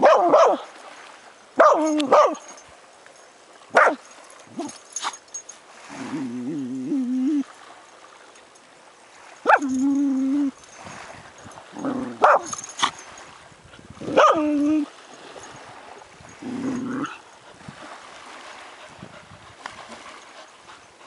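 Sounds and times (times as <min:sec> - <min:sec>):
dog yelping and whining: 0:09.5 - 0:10.6, 0:11.8 - 0:12.6, 0:14.1 - 0:14.9.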